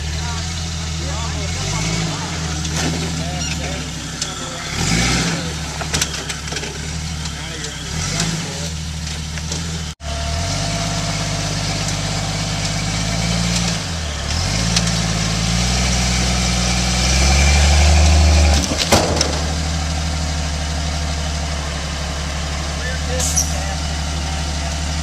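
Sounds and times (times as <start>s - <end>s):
engine pulling under load: 0.0s - 25.0s
sharp clunk: 18.6s - 19.8s.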